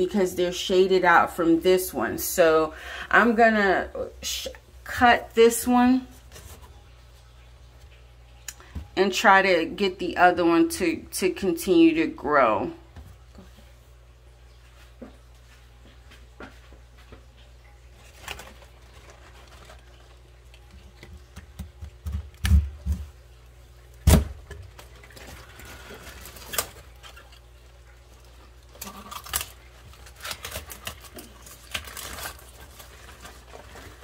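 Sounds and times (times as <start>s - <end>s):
leaf rustling: 17.9s - 21.0s, 24.7s - 34.0s.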